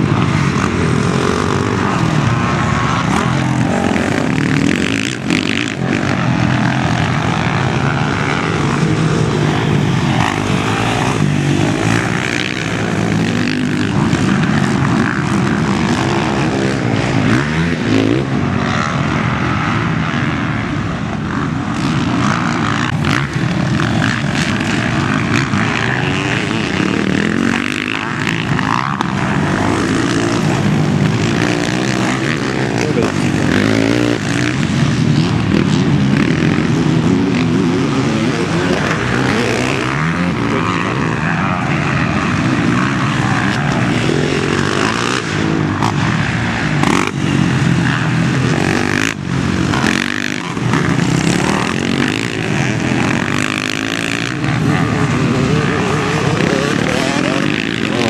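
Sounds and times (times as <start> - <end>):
motorcycle engines revving: 0.0 - 58.0.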